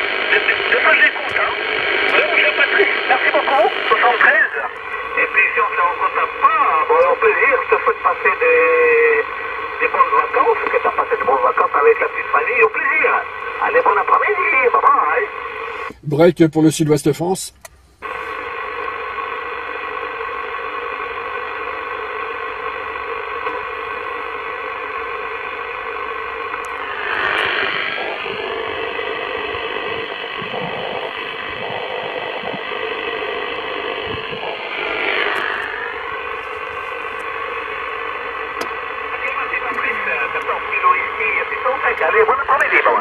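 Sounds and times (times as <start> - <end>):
radio swishes: 0.0 - 16.0, 26.5 - 43.0
faint steady radio tones: 0.0 - 43.0
radio band noise hiss: 0.0 - 43.0.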